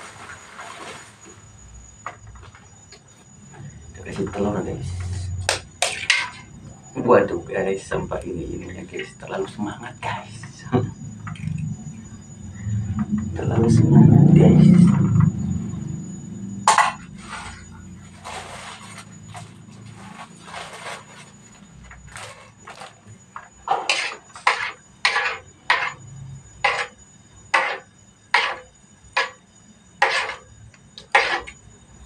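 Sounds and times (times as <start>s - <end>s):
spatula scraping a wok: 16.7s - 23.0s, 23.8s - 26.0s, 26.6s - 29.4s, 30.0s - 31.6s.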